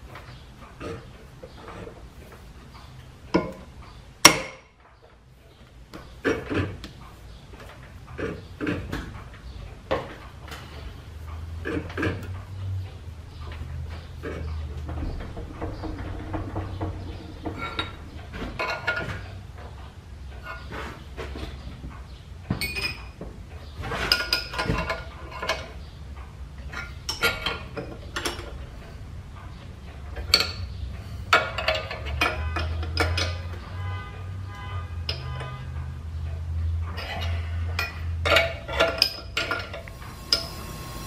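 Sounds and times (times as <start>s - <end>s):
wrench and clamps clinking on metal: 22.6s - 23.2s, 31.3s - 33.6s, 36.9s - 40.5s.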